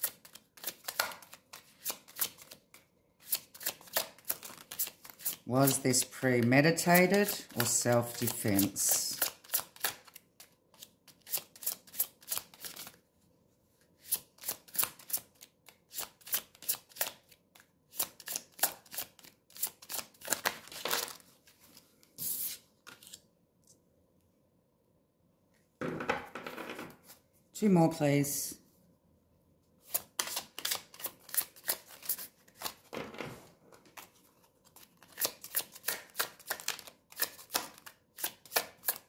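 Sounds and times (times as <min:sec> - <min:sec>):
cards being shuffled: 0:00.0 - 0:13.0, 0:13.8 - 0:23.2, 0:29.8 - 0:33.0, 0:33.7 - 0:39.0
cards rustling: 0:00.0 - 0:13.0, 0:14.0 - 0:23.2, 0:29.8 - 0:32.9, 0:33.7 - 0:39.0.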